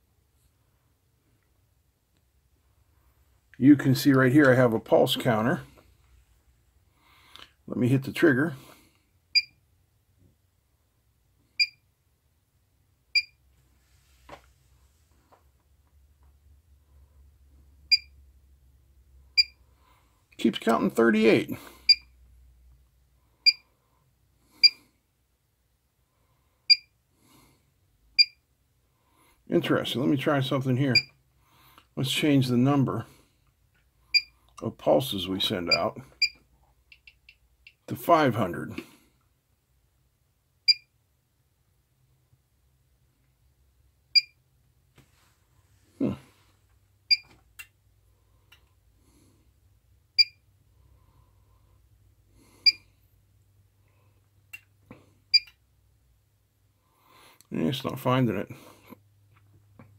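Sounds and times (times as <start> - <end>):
short electronic beeps: 17.9 - 18.2, 19.4 - 19.6, 28.2 - 28.4, 40.7 - 40.9, 44.2 - 44.4, 50.2 - 50.4.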